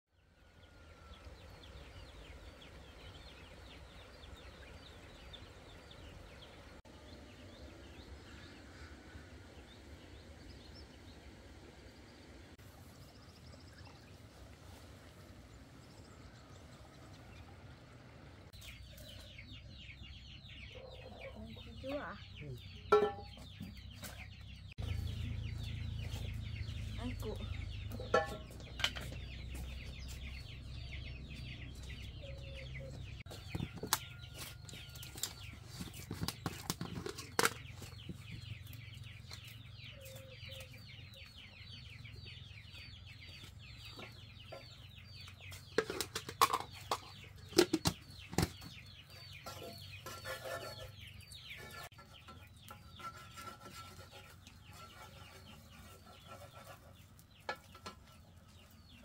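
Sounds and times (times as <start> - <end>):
chickens peeping: 16.2 - 59.0.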